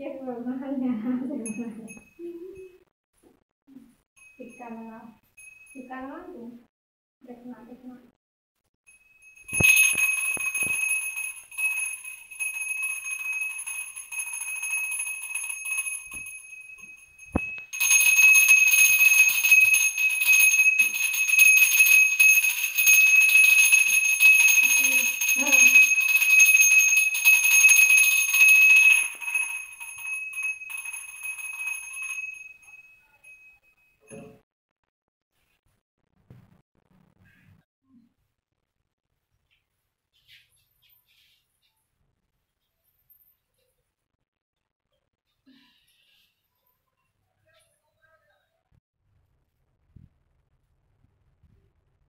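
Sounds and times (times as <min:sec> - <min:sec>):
hand bell ringing: 0:01.4 - 0:02.6, 0:04.2 - 0:05.9, 0:08.9 - 0:34.4.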